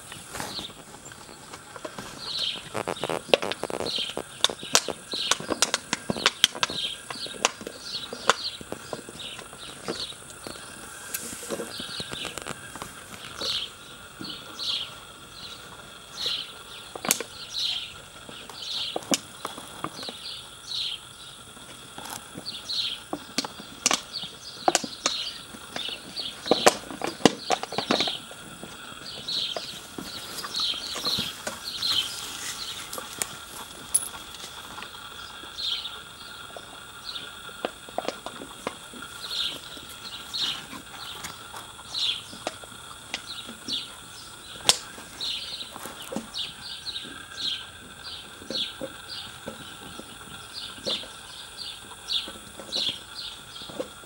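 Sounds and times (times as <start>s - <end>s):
insect drone: 0.0s - 54.0s
clicks and crinkles: 0.2s - 13.6s.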